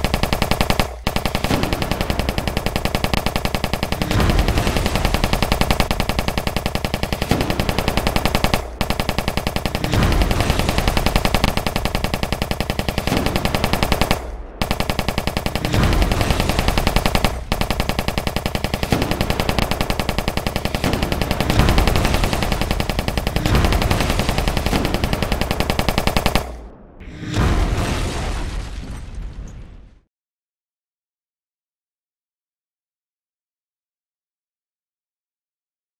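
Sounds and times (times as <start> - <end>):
machine-gun fire: 0.0 - 28.4.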